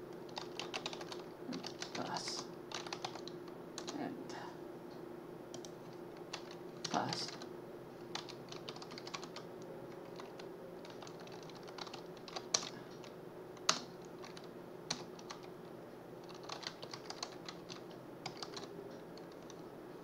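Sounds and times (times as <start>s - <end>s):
typing on computer keyboard: 0.3s - 4.0s, 5.5s - 7.5s, 8.1s - 9.4s, 10.0s - 15.5s, 16.2s - 19.6s.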